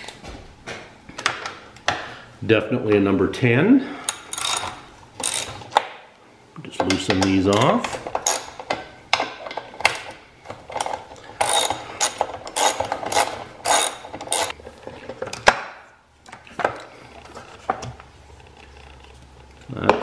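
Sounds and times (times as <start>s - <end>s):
socket ratchet clicking: 4.1s - 5.6s, 7.5s - 8.5s, 11.4s - 14.6s.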